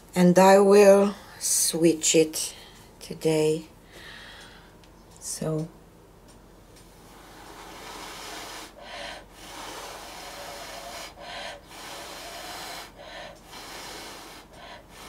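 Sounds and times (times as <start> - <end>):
person breathing: 3.8 - 4.8, 7.0 - 15.0.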